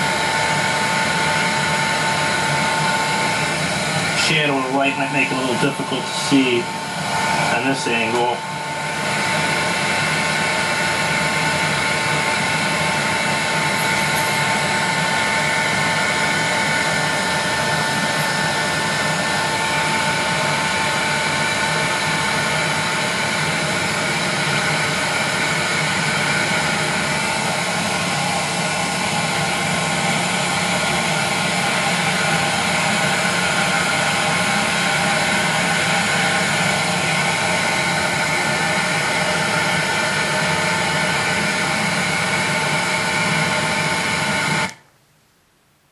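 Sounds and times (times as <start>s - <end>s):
heat gun blowing: 0.0s - 44.8s
thin motor whine: 0.0s - 44.8s.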